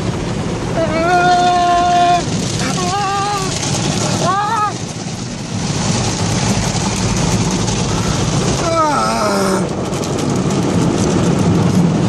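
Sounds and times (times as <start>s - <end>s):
low machinery hum: 0.0s - 12.0s
man's wavering cry: 0.7s - 3.6s, 4.2s - 4.8s, 8.6s - 9.7s
water spray and brushes: 1.5s - 8.6s.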